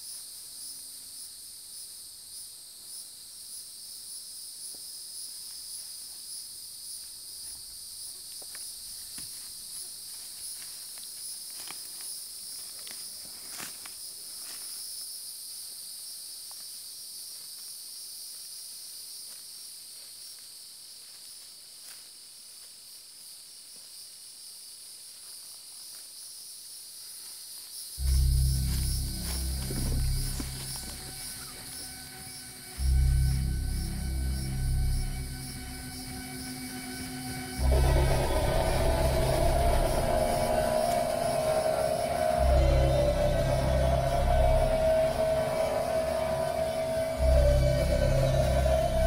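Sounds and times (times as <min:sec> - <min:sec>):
insect chorus droning: 0:00.0 - 0:49.0
low music: 0:28.0 - 0:49.0
rustling in dry leaves: 0:28.0 - 0:49.0.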